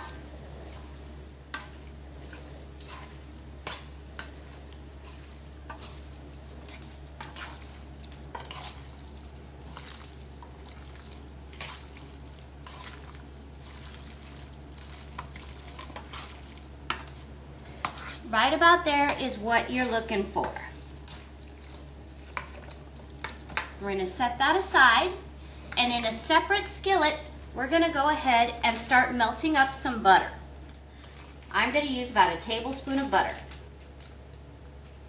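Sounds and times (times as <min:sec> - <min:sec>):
wet chicken pieces squishing: 0:01.9 - 0:18.2.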